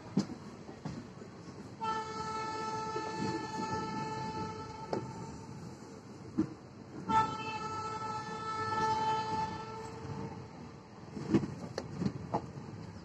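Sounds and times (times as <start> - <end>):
train rumbling slowly: 0.0 - 13.0
train horn blast: 1.8 - 5.7, 7.0 - 10.3.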